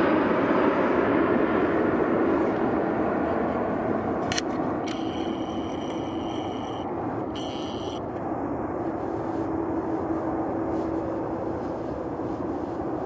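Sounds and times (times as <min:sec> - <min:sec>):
jet airliner engine rush: 0:00.0 - 0:13.0
high electronic beep: 0:04.9 - 0:08.0.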